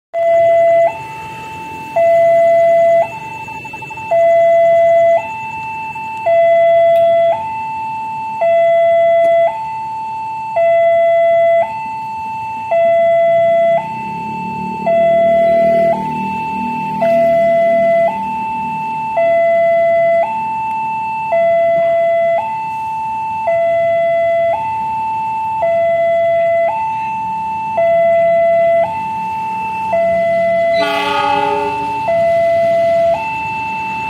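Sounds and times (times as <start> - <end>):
level crossing two-tone alarm: 0.2 - 34.0
train rumbling: 30.4 - 33.3.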